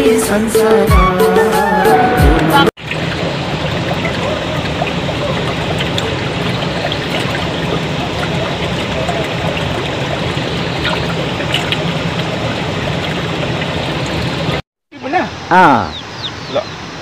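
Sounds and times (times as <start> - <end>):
stream water over stones: 2.8 - 14.6.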